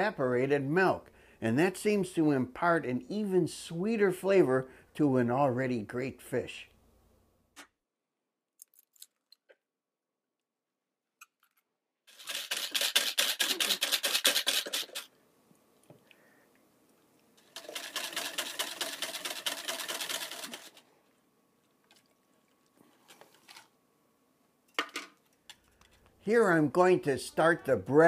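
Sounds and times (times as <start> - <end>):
whisk beating in plastic container: 12.2 - 15.1, 17.5 - 20.8.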